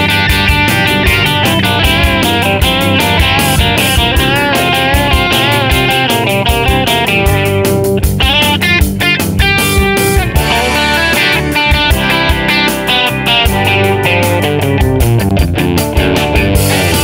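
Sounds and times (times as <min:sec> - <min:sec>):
electric guitar music with beat: 0:00.0 - 0:17.0.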